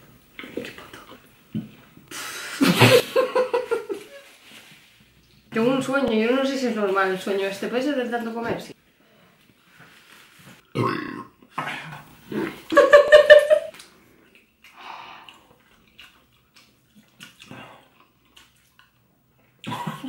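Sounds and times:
person belching loudly: 10.7 - 11.4.

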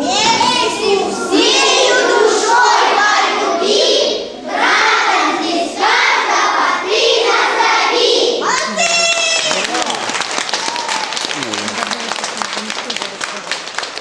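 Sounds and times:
children singing in chorus: 0.0 - 8.4.

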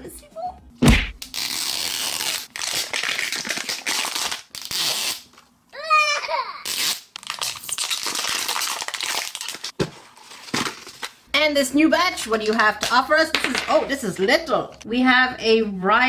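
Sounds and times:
packaging tearing and crinkling: 1.2 - 5.3, 6.7 - 11.2.

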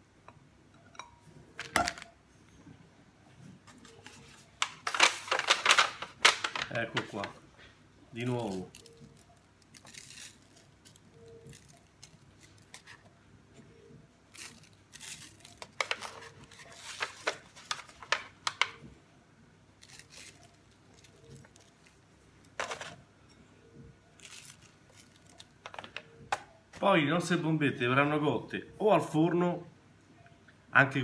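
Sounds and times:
foil tray crinkling: 3.8 - 7.3, 8.2 - 13.0, 14.3 - 18.8, 19.8 - 23.0, 24.2 - 26.0.

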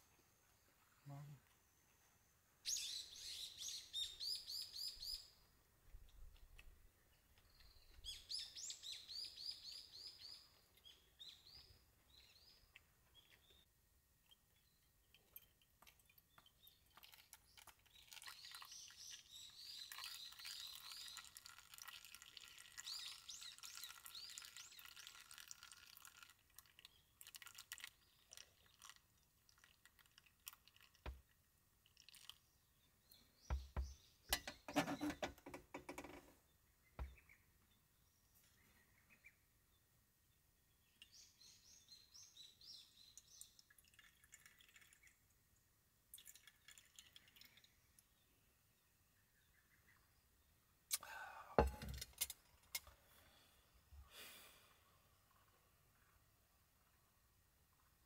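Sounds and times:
small bird chirping: 2.6 - 31.0, 31.9 - 39.8, 40.7 - 45.3.

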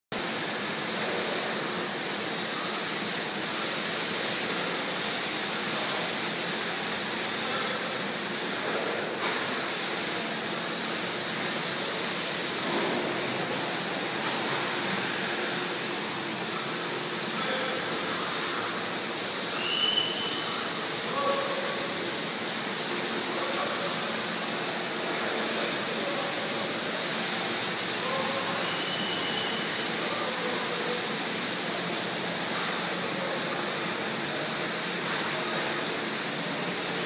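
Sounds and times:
milking machinery hissing: 0.2 - 37.0.

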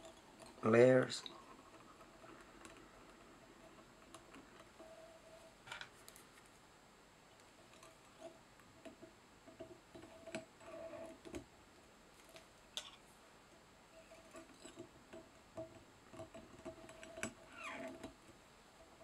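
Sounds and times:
light handling sounds: 5.6 - 6.7.

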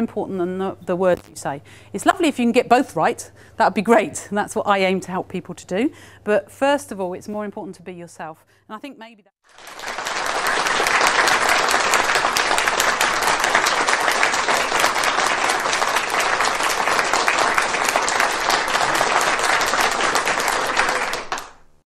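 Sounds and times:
audience applauding: 9.5 - 21.8.

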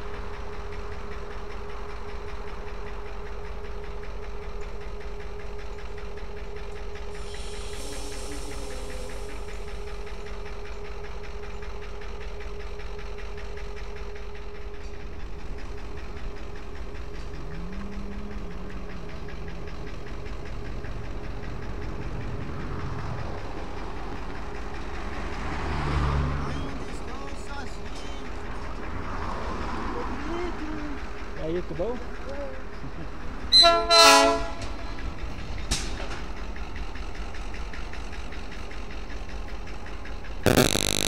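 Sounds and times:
diesel locomotive engines rumbling: 0.0 - 40.4
short hiss: 7.2 - 10.0.

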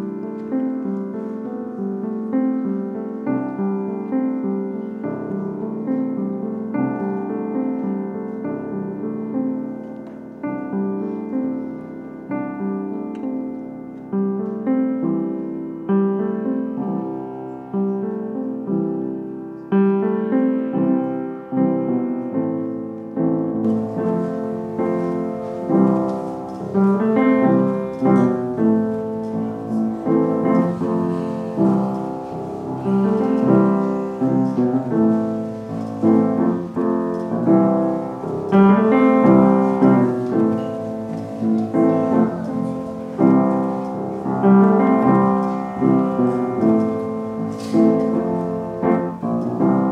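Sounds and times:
faint background noise: 0.0 - 49.9
piano music: 0.0 - 49.9.

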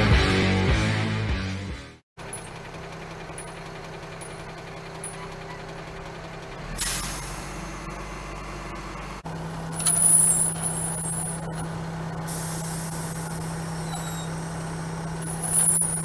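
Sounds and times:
truck engine idling: 2.2 - 16.0
air brake hissing: 6.7 - 7.8, 12.3 - 15.0
air brake click: 6.8 - 7.5.

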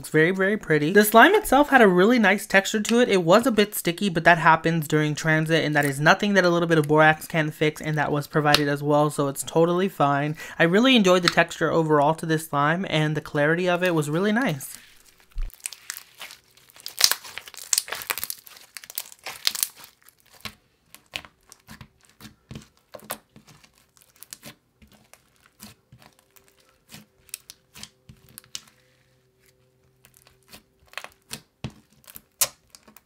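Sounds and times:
slime crackling: 13.8 - 33.0.

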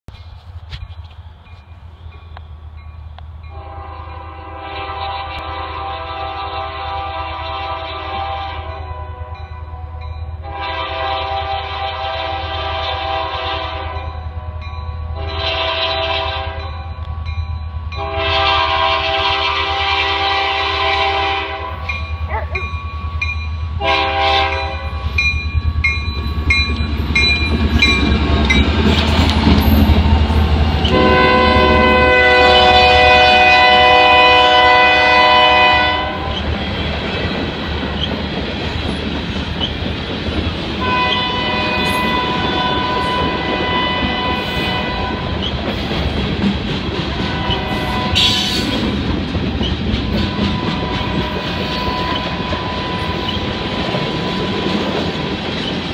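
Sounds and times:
locomotive horn blasts: 3.5 - 16.7, 17.9 - 22.4, 23.8 - 25.2, 30.8 - 36.4, 40.8 - 45.4, 47.2 - 48.8
wheels on rails: 24.7 - 32.0, 36.2 - 55.9
freight cars clickety-clack: 25.8 - 31.9, 36.2 - 55.9.

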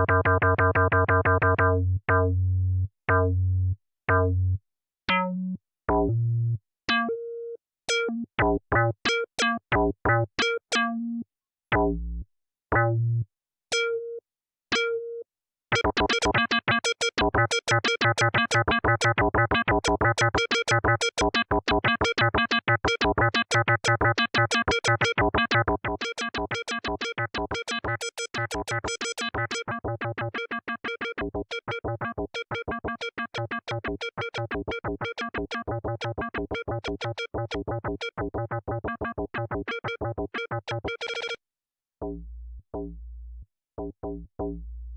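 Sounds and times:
synthesizer arpeggio notes: 29.6 - 41.1.

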